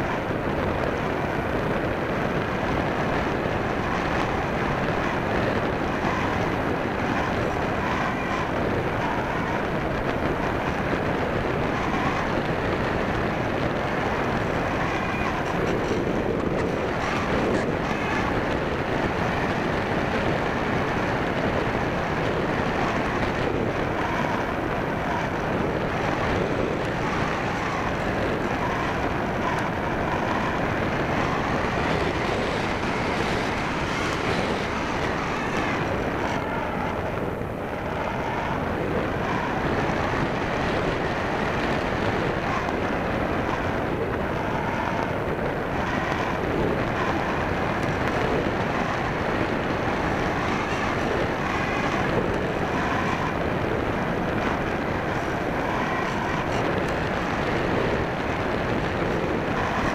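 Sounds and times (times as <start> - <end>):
wind rushing on microphone: 0.0 - 59.9.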